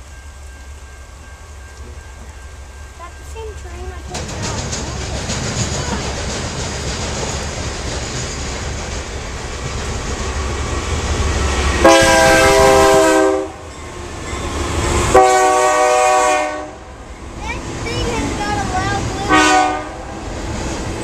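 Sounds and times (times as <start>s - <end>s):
diesel locomotives rumbling: 0.0s - 21.0s
locomotive air horn blasts: 11.8s - 13.7s, 15.0s - 16.9s, 19.3s - 20.2s.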